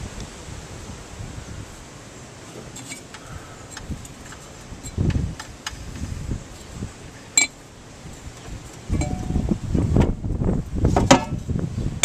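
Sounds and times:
small metal clicks and scrapes: 0:02.7 - 0:05.8.

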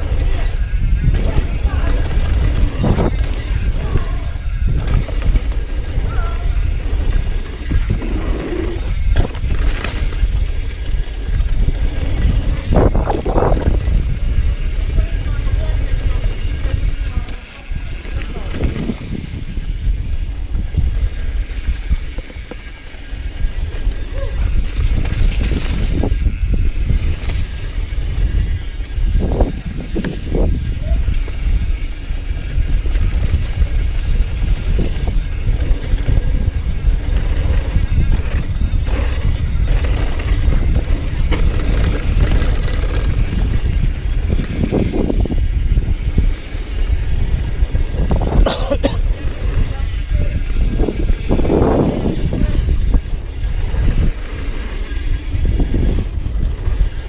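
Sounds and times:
bike clattering over bumps: 0:00.0 - 0:57.0
tyre noise on dirt: 0:00.0 - 0:57.0
wind buffeting microphone: 0:00.0 - 0:57.0.

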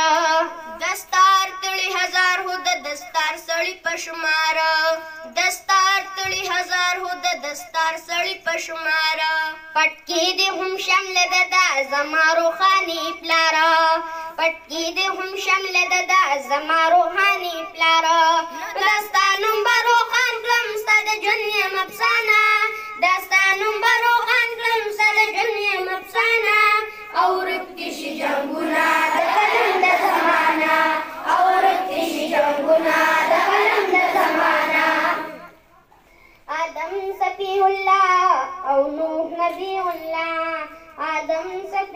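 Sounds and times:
boy singing into a microphone: 0:00.0 - 0:28.0, 0:36.2 - 0:41.9
children singing in unison: 0:25.2 - 0:35.6.

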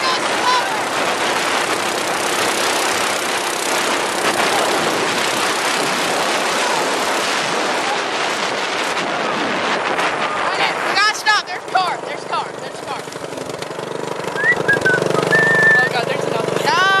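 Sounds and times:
minibike engine running: 0:00.0 - 0:07.2, 0:10.5 - 0:17.0
wind rushing on microphone: 0:00.0 - 0:17.0.

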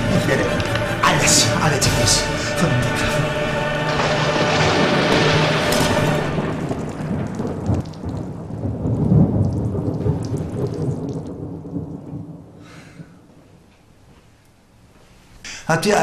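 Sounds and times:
thunder rumbling: 0:00.0 - 0:14.0
rain: 0:02.3 - 0:14.7.

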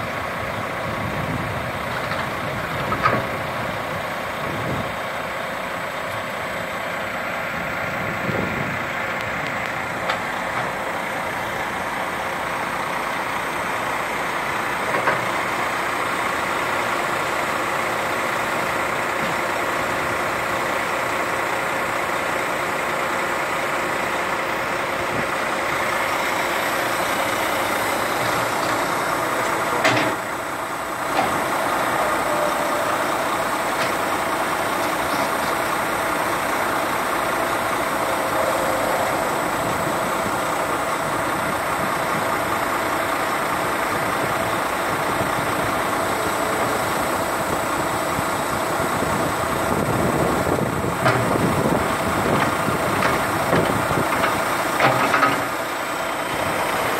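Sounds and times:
diesel engine running: 0:00.0 - 0:56.9
backhoe bucket knocking: 0:50.8 - 0:55.6.

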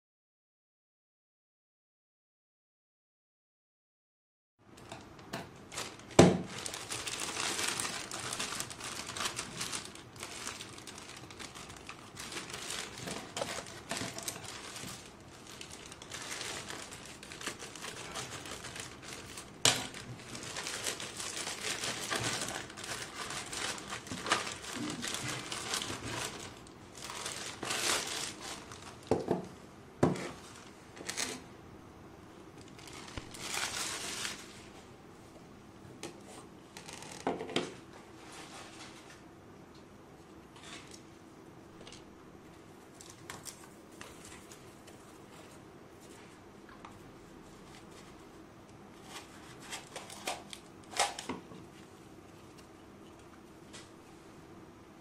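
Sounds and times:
plastic bag crinkling: 0:05.6 - 0:29.3, 0:30.2 - 0:31.5, 0:32.6 - 0:34.8, 0:49.0 - 0:51.3
scissors cutting plastic: 0:06.1 - 0:28.7, 0:49.2 - 0:51.3.

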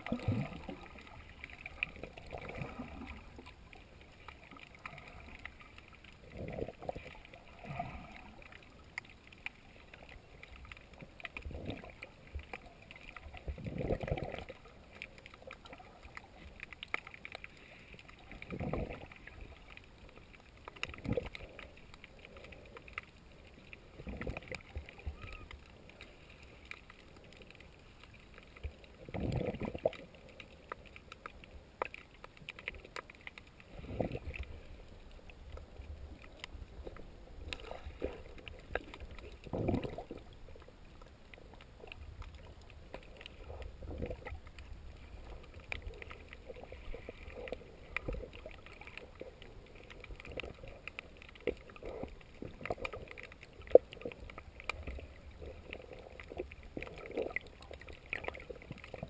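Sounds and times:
faint crackle of small clicks: 0:00.0 - 0:59.0.

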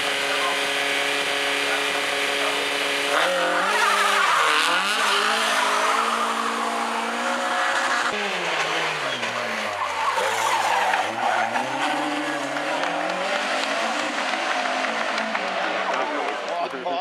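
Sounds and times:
sports car engine revving: 0:00.0 - 0:16.6
tyre squeal: 0:08.9 - 0:12.6.

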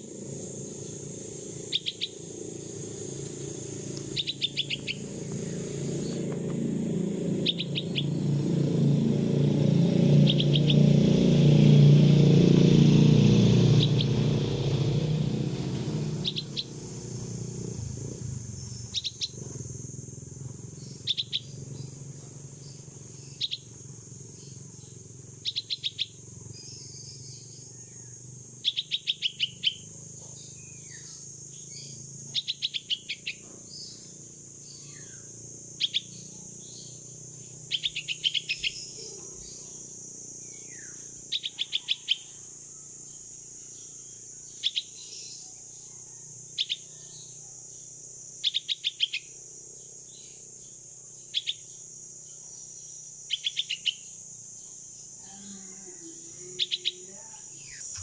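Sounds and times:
insect hiss: 0:00.0 - 0:58.0
bird chick calling: 0:03.9 - 0:06.4, 0:07.4 - 0:08.2, 0:16.2 - 0:16.8, 0:37.7 - 0:39.8, 0:40.7 - 0:42.4.

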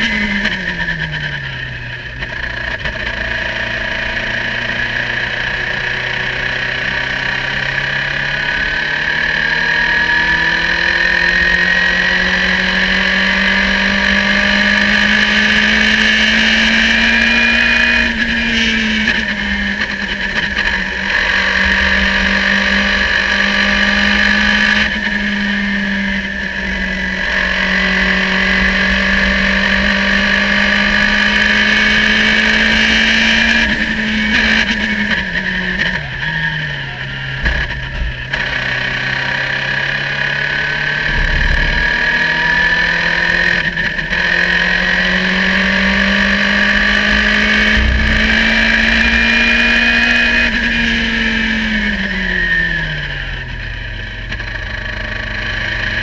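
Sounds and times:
racing car engine at high revs: 0:00.0 - 0:56.0
low thumps: 0:46.5 - 0:51.2.

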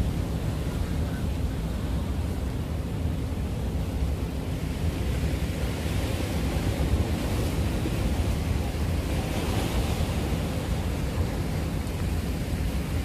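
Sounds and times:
wind rumbling on microphone: 0:00.0 - 0:13.0
sea waves breaking on concrete: 0:04.7 - 0:13.0.

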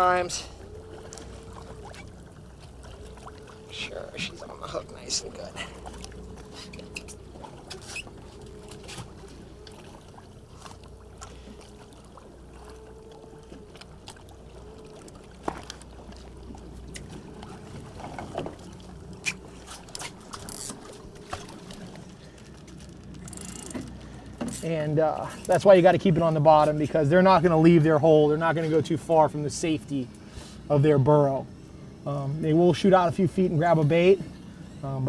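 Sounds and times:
boat motors idling: 0:00.0 - 0:35.0
water noise: 0:00.0 - 0:35.0
wind: 0:00.0 - 0:35.0.

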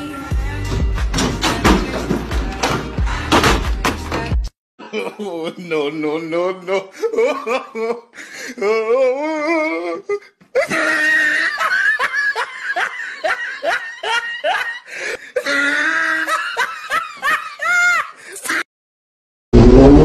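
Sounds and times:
hearty laughter: 0:06.8 - 0:08.5, 0:10.6 - 0:18.6.

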